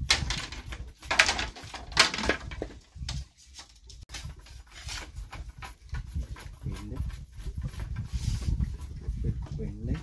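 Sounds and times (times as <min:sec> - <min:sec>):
sharp knocks and crackles: 0:00.0 - 0:10.0.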